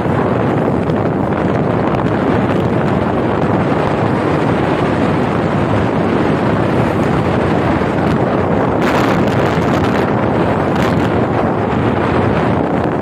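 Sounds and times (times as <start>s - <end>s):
road and engine rumble: 0.0s - 13.0s
wind buffeting microphone: 0.0s - 13.0s.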